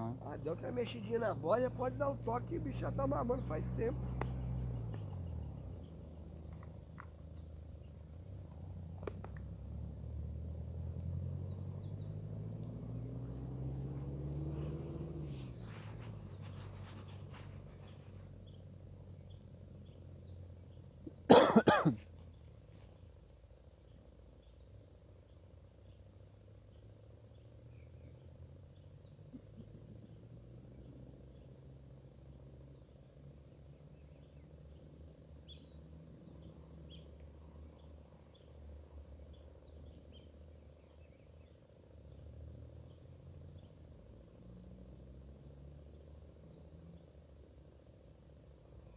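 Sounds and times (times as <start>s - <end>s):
crickets chirring: 0.0s - 48.9s
person coughing: 21.3s - 22.0s.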